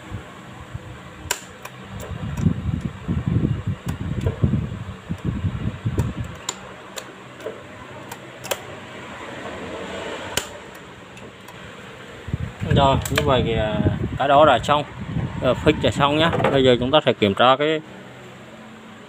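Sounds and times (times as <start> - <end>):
electric fan running: 0.0 - 19.0
sharp clicks: 1.2 - 2.9, 5.9 - 8.7, 10.3 - 11.6, 13.0 - 13.3.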